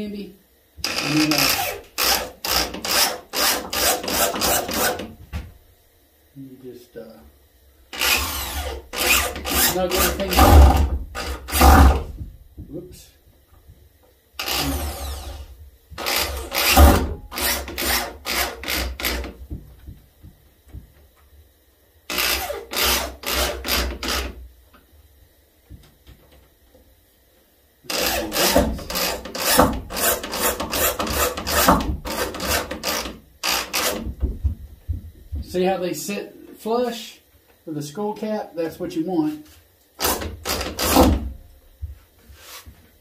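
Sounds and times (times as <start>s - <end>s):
power drill driving screws: 0.8s - 5.1s, 7.9s - 12.1s, 14.4s - 19.3s, 22.1s - 24.3s, 27.9s - 34.0s, 40.0s - 41.2s.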